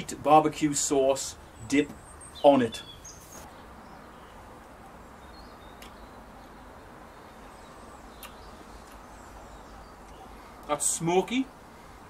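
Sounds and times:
faint bird chirps: 0:01.4 - 0:10.6.

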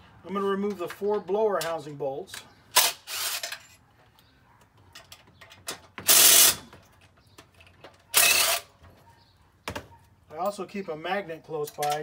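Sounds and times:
tool and bolt clicks: 0:00.7 - 0:09.0, 0:11.5 - 0:12.0.

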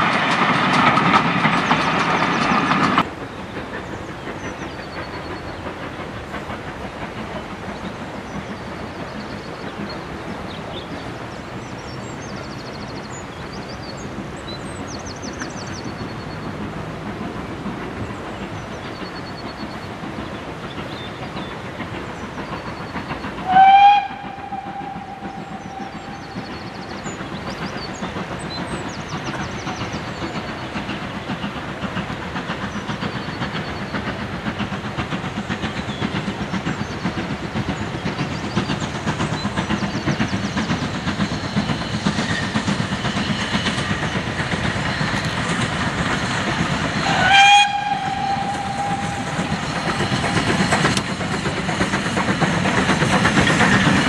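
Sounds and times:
steam locomotive exhaust: 0:00.0 - 0:54.0
train running: 0:00.0 - 0:54.0
steam locomotive whistle: 0:23.4 - 0:26.8, 0:47.0 - 0:50.5.

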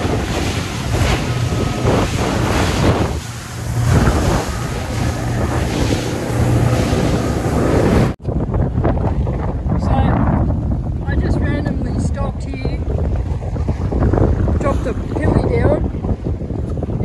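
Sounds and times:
water rushing and spray: 0:00.0 - 0:08.2
outboard motor drone: 0:00.0 - 0:17.0
wind buffeting microphone: 0:00.0 - 0:17.0.

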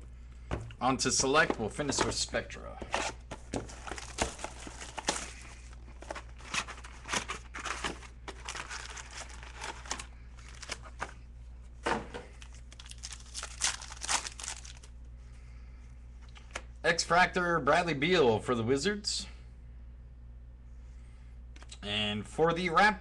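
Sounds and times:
wrappers crinkling and tearing: 0:02.9 - 0:11.2, 0:12.4 - 0:14.9.

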